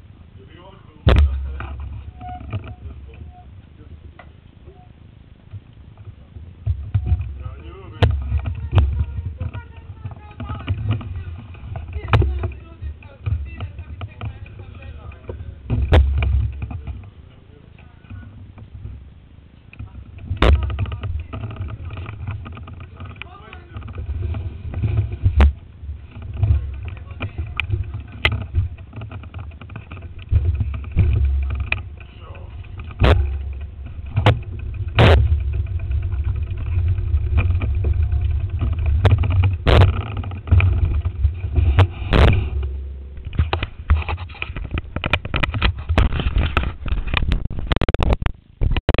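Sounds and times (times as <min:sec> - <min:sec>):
camera handling rumble: 0:17.8 - 0:49.0
wind buffeting microphone: 0:17.9 - 0:49.0.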